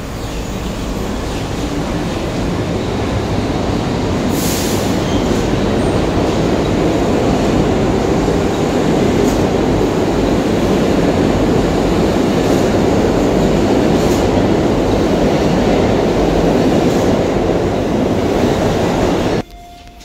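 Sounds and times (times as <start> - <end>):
subway train rumbling on rails: 0.0 - 20.0.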